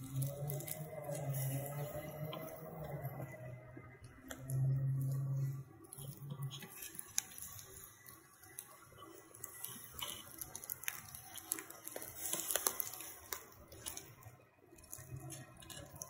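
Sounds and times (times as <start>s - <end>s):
meat sizzling over embers: 0.0s - 3.4s, 6.3s - 14.4s
fire pops and crackles: 6.4s - 16.0s.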